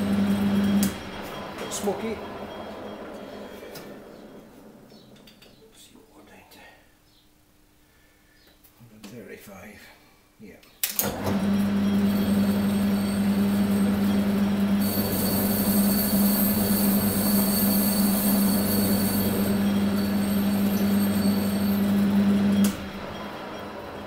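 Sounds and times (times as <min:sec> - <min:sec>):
lathe motor hum and whine: 0:00.0 - 0:05.2, 0:11.0 - 0:24.0.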